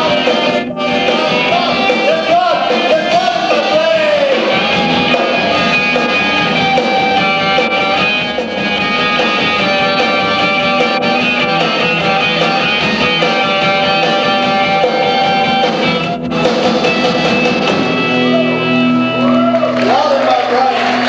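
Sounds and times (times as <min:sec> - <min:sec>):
drum kit: 0:00.0 - 0:19.9
electric guitars: 0:00.0 - 0:21.0.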